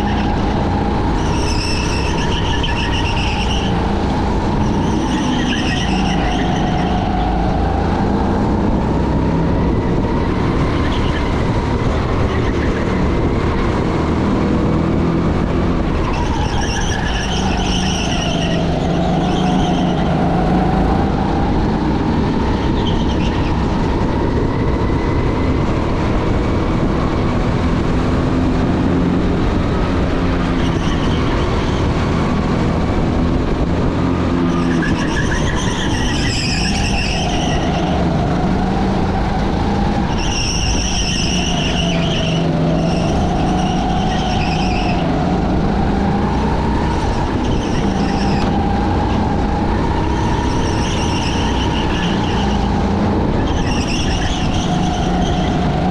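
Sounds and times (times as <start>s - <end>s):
high squeals: 0.0s - 7.7s, 16.0s - 20.6s, 34.5s - 38.2s, 39.2s - 45.9s, 46.8s - 55.9s.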